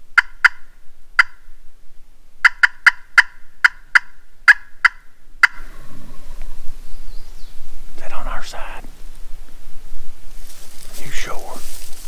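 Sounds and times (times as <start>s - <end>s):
turkey call notes: 0.1s - 1.6s, 2.4s - 6.8s.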